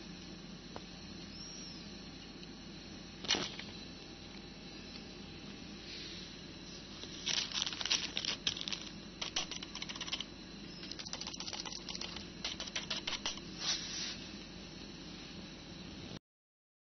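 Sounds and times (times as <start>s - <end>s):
keyboard keys clicking: 7.3s - 13.4s.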